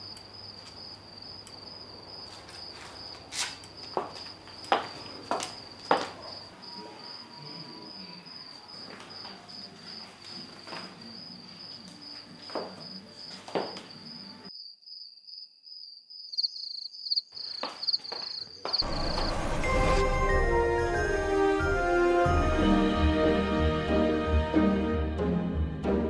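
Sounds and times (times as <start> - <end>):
cricket chirping: 0.0 - 20.2
music: 18.8 - 26.0.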